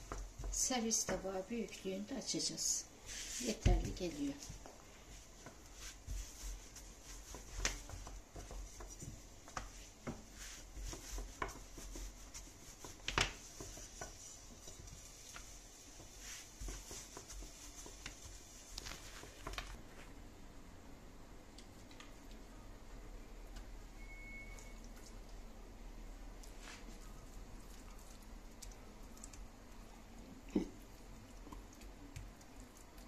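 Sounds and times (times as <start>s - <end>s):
rolling pin rolling dough: 0.0s - 2.2s, 3.0s - 20.0s.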